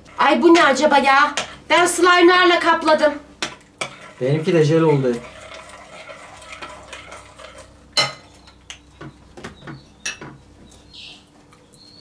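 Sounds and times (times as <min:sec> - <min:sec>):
spoon stirring in glass bowl: 0:03.4 - 0:04.4, 0:05.1 - 0:08.9
metal clinking on glass: 0:10.0 - 0:10.3.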